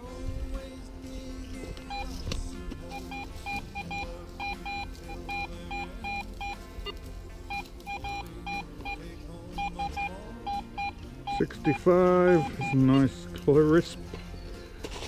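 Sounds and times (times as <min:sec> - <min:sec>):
metal detector beeping: 0:01.8 - 0:02.2, 0:02.8 - 0:13.2.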